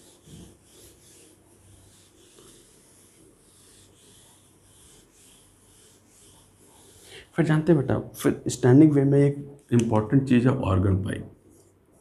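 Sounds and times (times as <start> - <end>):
eraser rubbing on whiteboard: 0.0 - 7.7.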